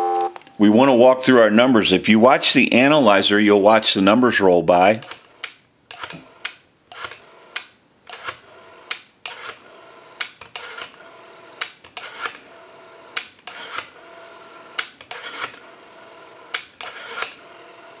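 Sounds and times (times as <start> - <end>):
rotary dial whirring back: 5.0 - 18.0
rotary dial click: 16.5 - 17.9.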